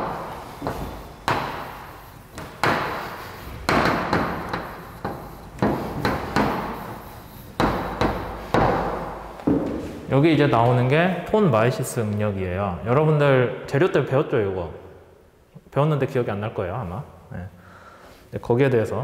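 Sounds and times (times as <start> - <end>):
chalk tapping on blackboard: 0.0 - 9.3.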